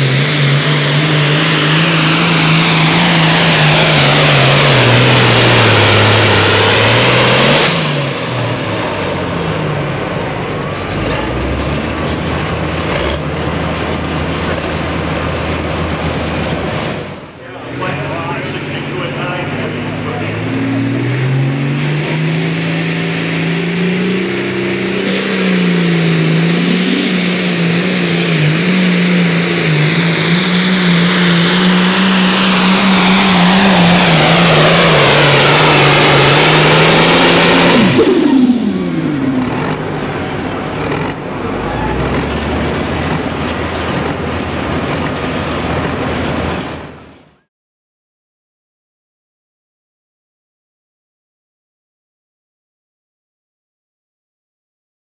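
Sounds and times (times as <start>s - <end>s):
tractor diesel engine under load: 0.0s - 47.5s.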